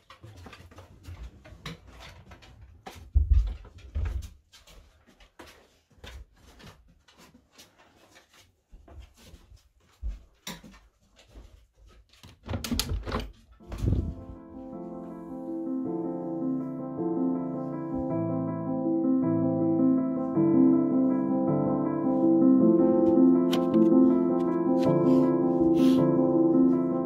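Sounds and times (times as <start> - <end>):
footsteps on wooden floor: 0.0 - 12.4, 13.6 - 15.6, 22.8 - 26.0.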